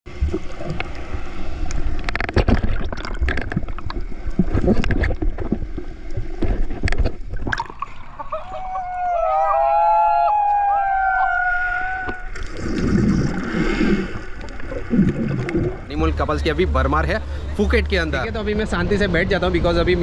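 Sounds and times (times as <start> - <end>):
water splashing and bubbling: 0.1 - 9.0, 11.8 - 16.5.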